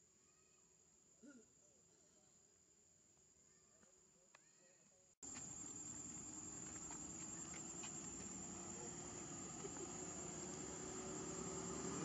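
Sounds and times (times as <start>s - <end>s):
insect chorus trilling: 5.2s - 12.0s.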